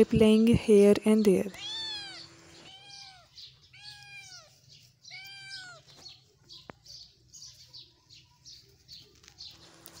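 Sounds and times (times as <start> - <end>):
kitten meowing: 1.5 - 6.0.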